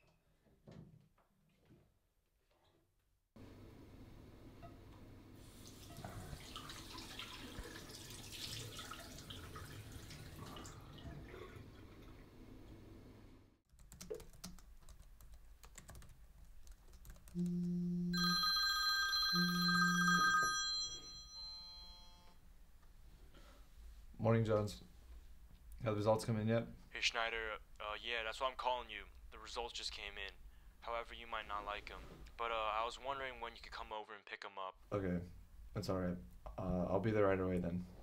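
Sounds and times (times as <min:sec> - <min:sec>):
water splashing in sink: 0:05.6 - 0:12.3
laptop keyboard typing: 0:13.7 - 0:17.7
smartphone ringtone: 0:18.1 - 0:22.3.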